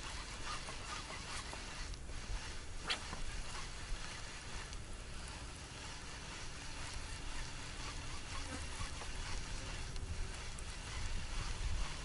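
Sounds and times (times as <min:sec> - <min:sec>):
wind rumble on microphone: 0:06.3 - 0:12.0.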